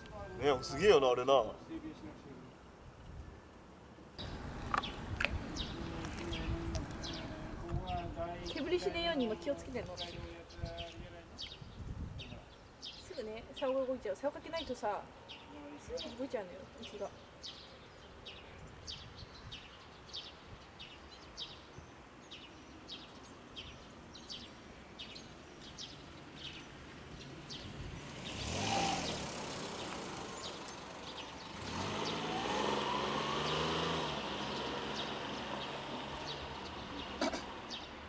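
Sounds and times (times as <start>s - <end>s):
motor vehicles passing: 4.2s - 10.1s, 25.7s - 38.0s
bird chirping: 4.2s - 38.0s.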